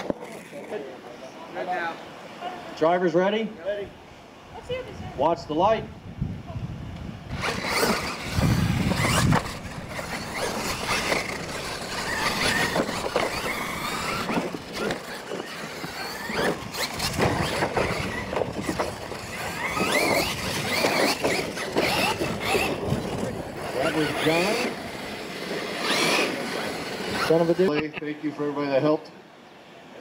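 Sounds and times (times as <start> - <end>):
electric motor whine: 7.3 - 27.8.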